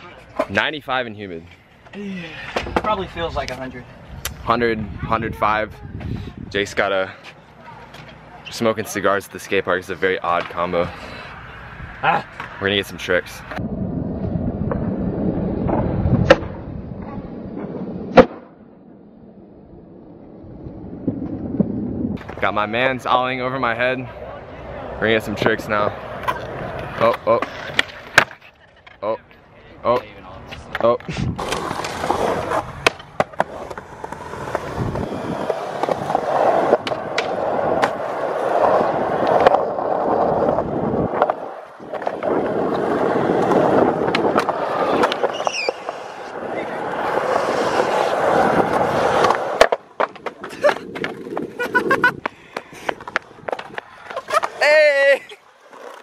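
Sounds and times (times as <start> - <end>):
skateboard wheels rolling on concrete: 0.0 - 56.0
skateboard clacks: 26.2 - 29.0, 30.6 - 56.0.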